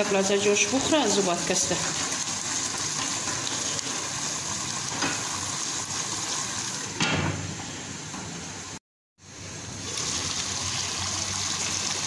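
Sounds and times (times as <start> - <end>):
chicken sizzling in sauce: 0.1 - 7.0, 8.7 - 12.0.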